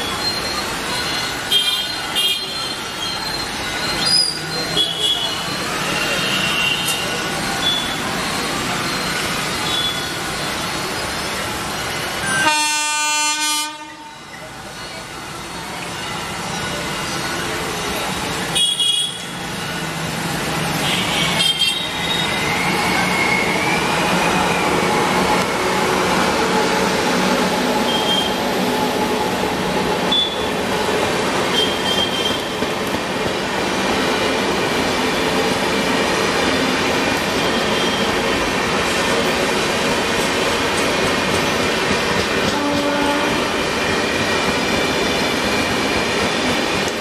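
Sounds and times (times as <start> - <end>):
high wheel squeals: 0.0 - 12.6, 13.9 - 25.5, 26.2 - 29.4, 30.0 - 30.8, 31.4 - 32.6, 36.4 - 38.3
train wheels rumbling on rails: 0.0 - 47.0.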